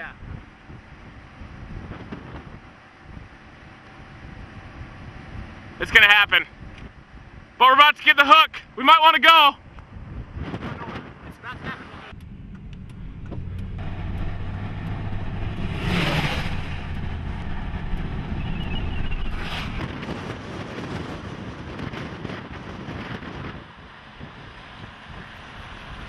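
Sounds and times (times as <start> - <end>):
car engine and road noise: 0.0 - 26.0
loud whooshes: 12.0 - 20.9.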